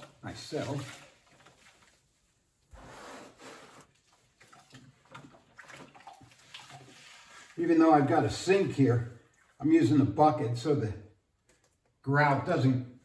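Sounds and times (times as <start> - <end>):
faint water sloshing in bucket: 0.0 - 2.7, 3.8 - 10.7.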